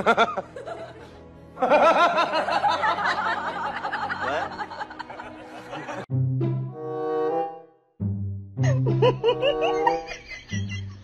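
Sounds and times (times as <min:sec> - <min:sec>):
background music: 0:00.0 - 0:11.0
person laughing: 0:08.6 - 0:11.0.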